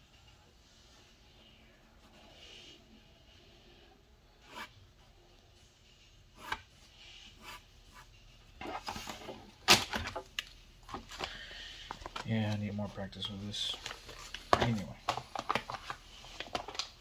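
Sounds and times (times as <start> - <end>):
art materials rubbing and scratching: 0.7 - 9.3.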